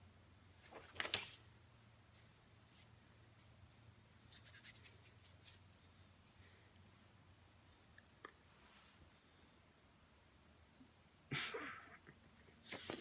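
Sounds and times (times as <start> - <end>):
low steady hum: 0.0 - 13.0
paper rustling: 0.6 - 1.4.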